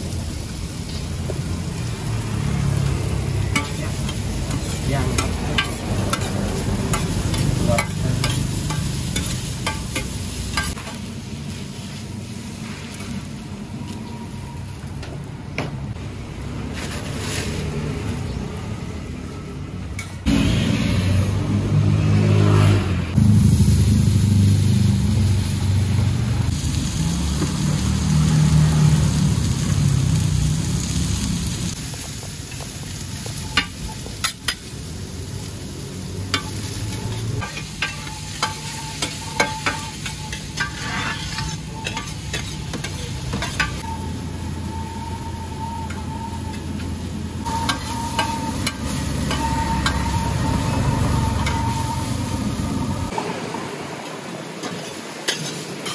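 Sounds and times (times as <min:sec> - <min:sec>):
metal spatulas clacking on pan: 0:03.6 - 0:10.8, 0:37.4 - 0:43.8, 0:54.6 - 0:55.9
tofu sizzling in oil: 0:26.4 - 0:52.6.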